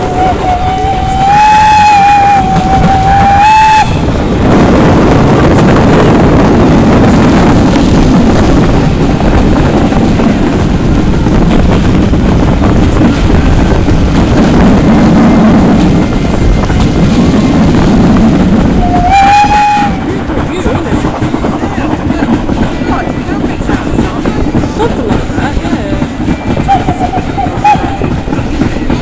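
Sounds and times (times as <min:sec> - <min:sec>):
steam train whistle: 0:00.0 - 0:04.1, 0:18.8 - 0:20.1, 0:26.6 - 0:28.2
train running rumble: 0:00.0 - 0:29.0.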